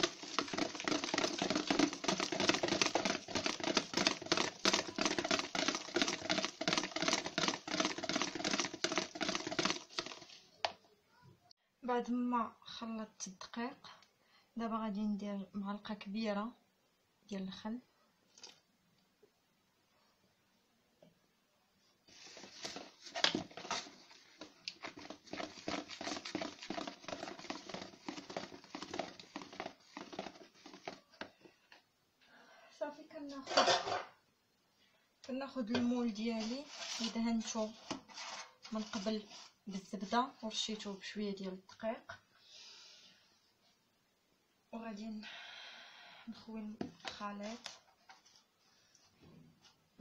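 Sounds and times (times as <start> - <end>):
whisk beating batter in bowl: 0.0 - 10.4, 22.4 - 31.3.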